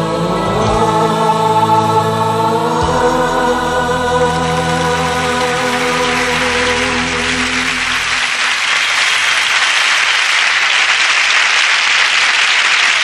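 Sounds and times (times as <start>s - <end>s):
pop song with choir: 0.0s - 8.4s
audience applause: 4.3s - 13.0s.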